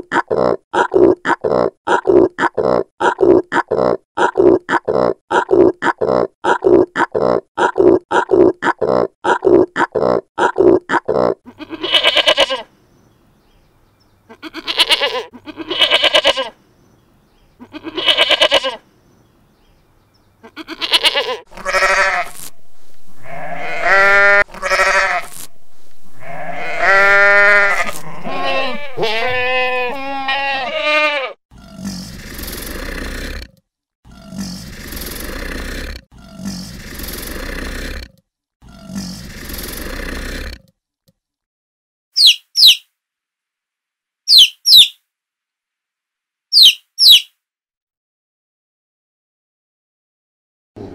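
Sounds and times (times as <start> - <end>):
goat and sheep bleating: 11.5 - 12.7, 14.3 - 16.6, 17.6 - 18.8, 20.4 - 22.5, 23.2 - 25.5, 26.1 - 31.4.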